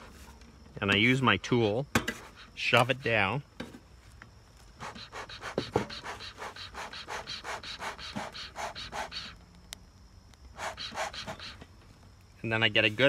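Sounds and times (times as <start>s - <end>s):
bellows puffing air: 4.8s - 9.4s, 10.5s - 11.7s.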